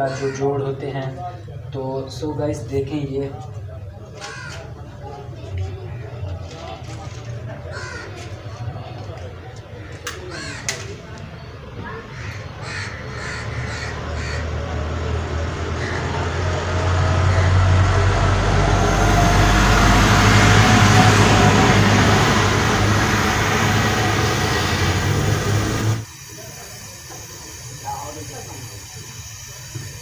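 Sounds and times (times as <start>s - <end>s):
crows cawing: 0.0s - 0.5s, 4.2s - 4.7s, 7.7s - 8.3s, 9.8s - 10.8s, 12.1s - 14.5s
gas torch flame hissing: 18.4s - 30.0s.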